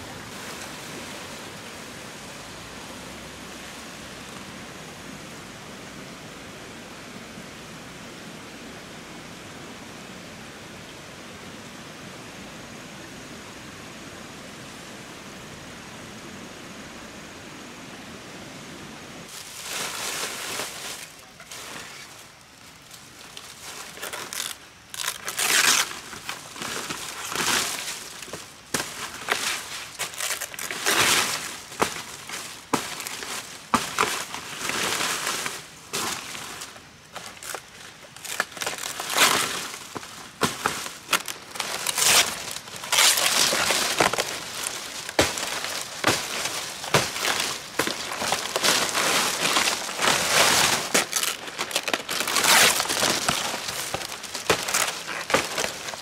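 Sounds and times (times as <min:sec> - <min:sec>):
palm fronds rustling: 0:00.0 - 0:07.2, 0:18.0 - 0:56.0
fronds snapping: 0:22.8 - 0:56.0.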